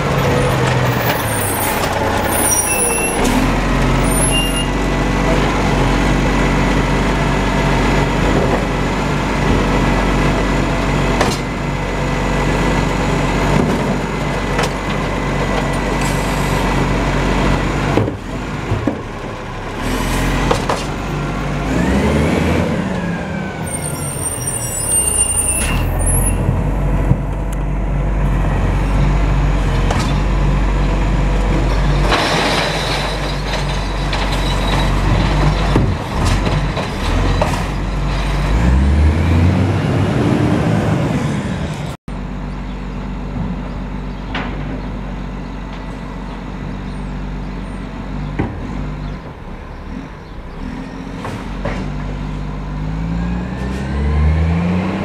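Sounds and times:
truck diesel engine revving: 0.0s - 32.5s, 35.0s - 42.0s, 48.1s - 55.0s
high-pitched squeal: 0.3s - 4.9s, 23.4s - 26.5s.

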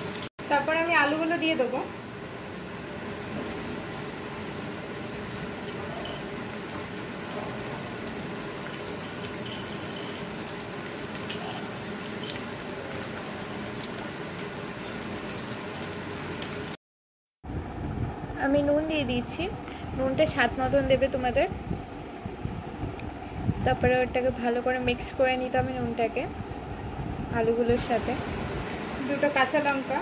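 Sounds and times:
potatoes sizzling in hot oil: 0.0s - 16.8s.

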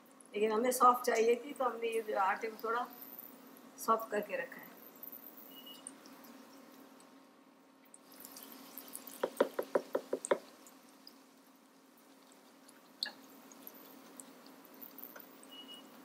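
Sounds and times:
oil sizzling: 4.8s - 16.0s
spatula knocking against bowl: 9.2s - 10.5s.

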